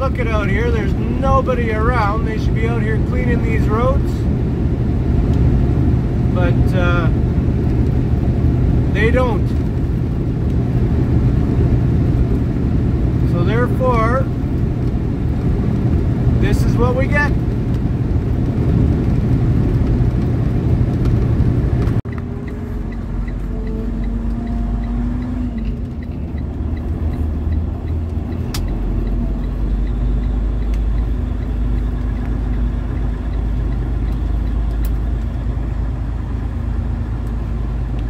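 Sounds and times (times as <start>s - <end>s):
truck engine and tyres droning: 0.0s - 38.0s
sharp click: 27.9s - 29.2s.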